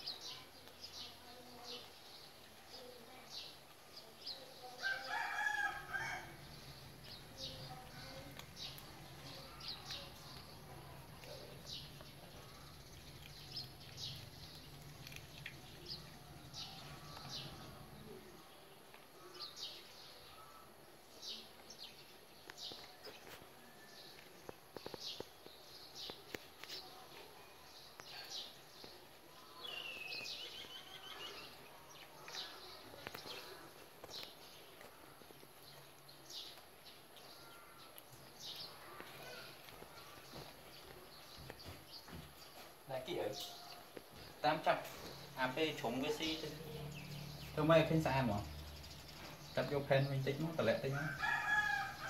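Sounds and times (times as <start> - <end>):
rooster crowing: 4.8 - 6.4, 50.9 - 52.0.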